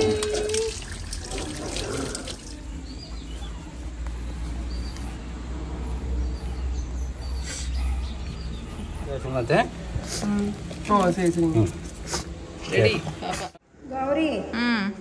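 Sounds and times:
water running from a hose: 0:00.0 - 0:02.7.

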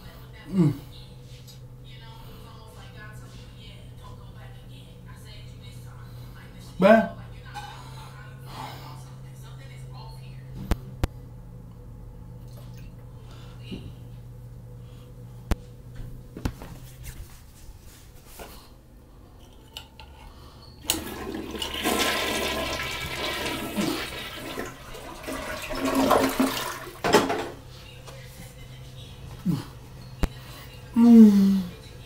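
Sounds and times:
toilet flushing: 0:20.8 - 0:27.6.

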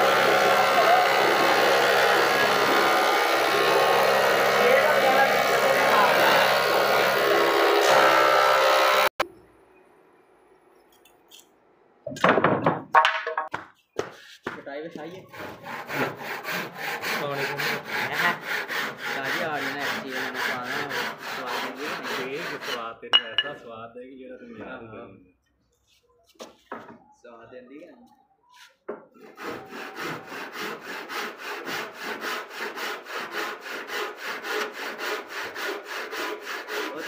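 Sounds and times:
hand saw cutting wood: 0:00.0 - 0:09.2, 0:14.0 - 0:23.4, 0:29.1 - 0:37.0
offcut knocking on concrete floor: 0:12.1 - 0:14.6, 0:23.2 - 0:23.6.

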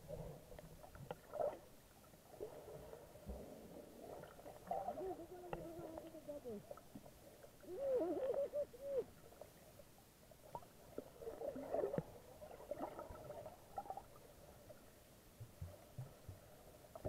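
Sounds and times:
underwater bubbling: 0:00.0 - 0:17.0
scattered clicks underwater: 0:00.5 - 0:01.6.

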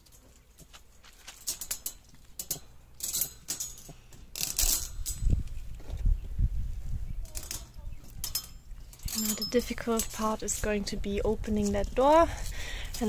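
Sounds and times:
metal wire crate rattling: 0:00.0 - 0:05.6, 0:07.3 - 0:13.0
small chain clinking: 0:00.0 - 0:05.6, 0:07.3 - 0:10.7.

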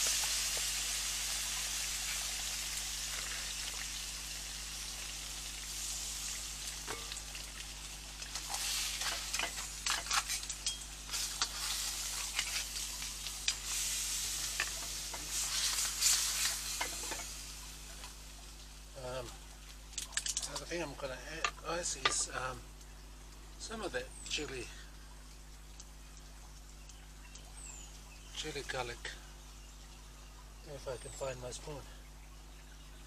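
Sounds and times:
food sizzling in a pan: 0:00.0 - 0:19.1
utensil scraping a pan: 0:08.4 - 0:17.4.

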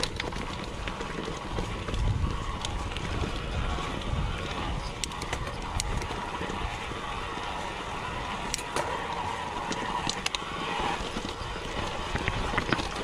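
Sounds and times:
bike tyres rolling on gravel: 0:00.0 - 0:13.0
stones clicking and rattling: 0:09.6 - 0:13.0.

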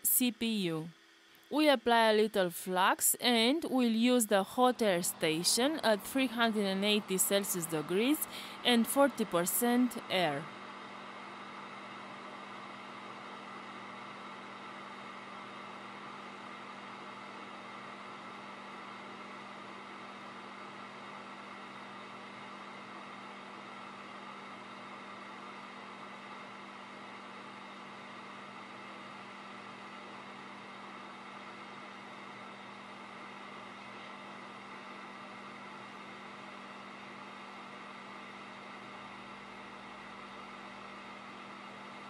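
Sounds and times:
steady low hum: 0:00.0 - 0:42.0
hot air station blowing: 0:02.3 - 0:16.1.

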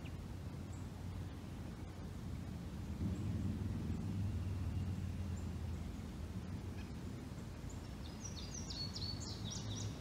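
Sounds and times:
steady low rumble: 0:00.0 - 0:10.0
songbird singing high notes: 0:07.7 - 0:10.0.

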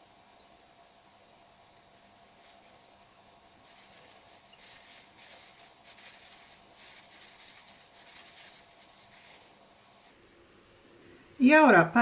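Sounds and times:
crochet hook and yarn swishing: 0:03.6 - 0:09.6.

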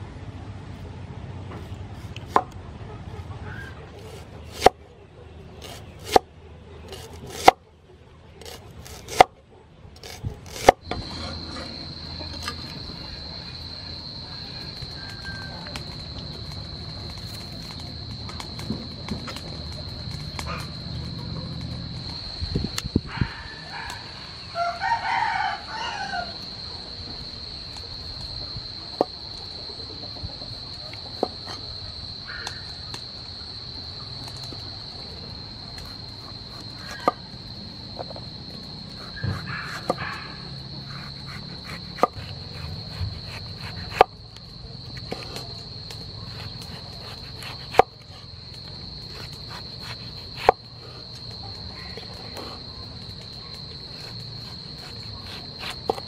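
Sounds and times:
cleaver chopping on wooden board: 0:06.9 - 0:07.6, 0:08.4 - 0:09.3, 0:40.9 - 0:44.2, 0:46.4 - 0:47.9, 0:49.1 - 0:50.6
rooster crowing: 0:11.8 - 0:16.1, 0:23.1 - 0:26.6, 0:39.2 - 0:41.1.

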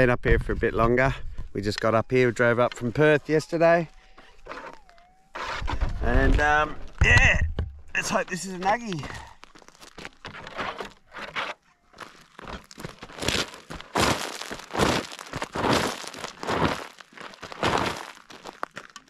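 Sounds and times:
pick digging into gravel: 0:12.3 - 0:19.0.

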